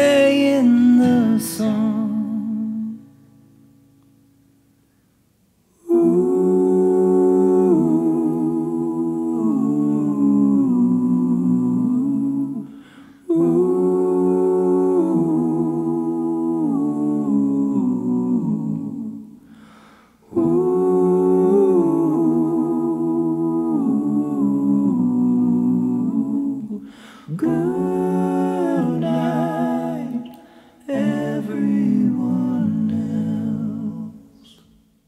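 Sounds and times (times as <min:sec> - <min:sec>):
person humming a slow melody: 0:05.8 - 0:19.3, 0:20.3 - 0:34.7.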